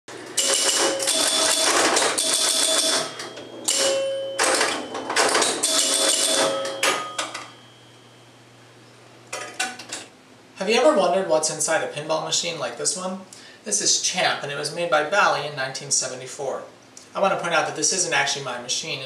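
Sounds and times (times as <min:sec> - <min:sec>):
pinball machine clattering: 0:00.1 - 0:07.6
ringing scoring tones: 0:00.4 - 0:08.3.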